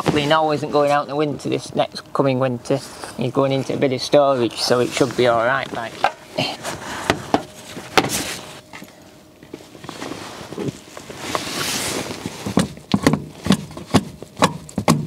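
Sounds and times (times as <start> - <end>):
rustling plastic scrape: 4.4 - 8.7, 9.5 - 13.8.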